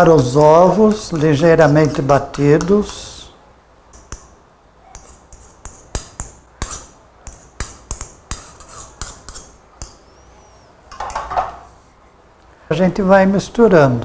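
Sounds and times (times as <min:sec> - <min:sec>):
spatula stirring mashed mixture: 0:00.2 - 0:03.1, 0:04.0 - 0:10.2
fork scraping ceramic bowl: 0:05.0 - 0:09.6.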